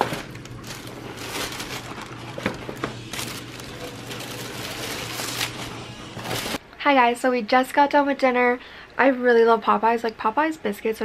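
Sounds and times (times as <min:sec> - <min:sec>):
cardboard boxes shifting: 0:00.0 - 0:06.6
plastic bag rustling: 0:00.0 - 0:06.6
low steady hum: 0:00.0 - 0:09.4.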